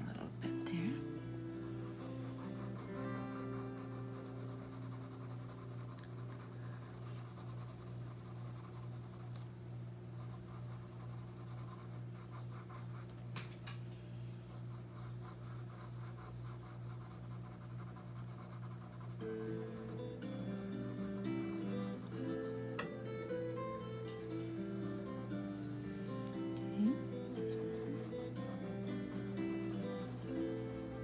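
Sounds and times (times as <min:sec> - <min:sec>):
steady low hum: 0:00.0 - 0:31.0
pencil scratching on paper: 0:01.6 - 0:09.4, 0:10.1 - 0:13.1, 0:14.5 - 0:23.0, 0:27.3 - 0:31.0.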